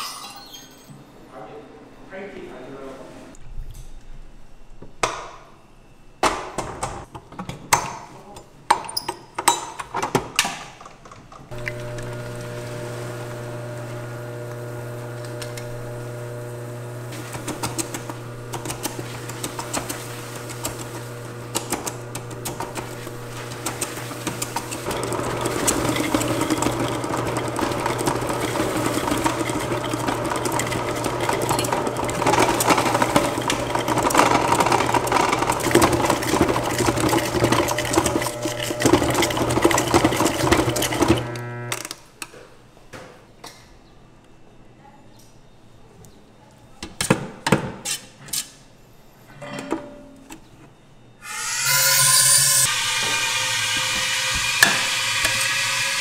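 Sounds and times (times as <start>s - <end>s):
stand mixer motor humming: 11.5s - 41.8s.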